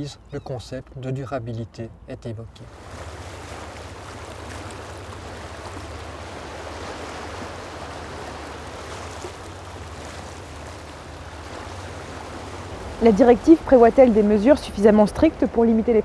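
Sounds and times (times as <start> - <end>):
small waves washing in: 2.7 - 16.0.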